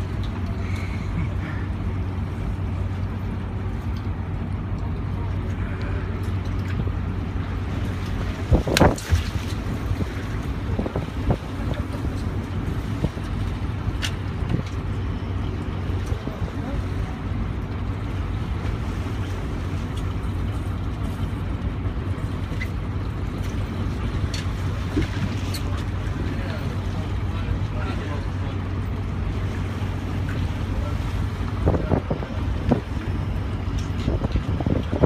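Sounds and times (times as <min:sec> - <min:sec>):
boat engine droning: 0:00.0 - 0:35.0
wind on microphone: 0:08.1 - 0:13.4, 0:31.4 - 0:35.0.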